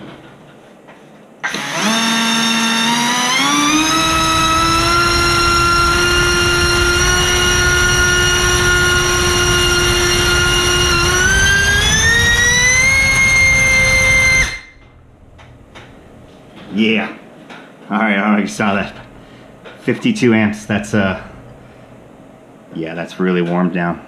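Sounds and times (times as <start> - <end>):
drone motor high whine: 1.4 - 16.7, 18.5 - 22.5
propeller wash rushing: 4.0 - 16.7, 18.5 - 22.4.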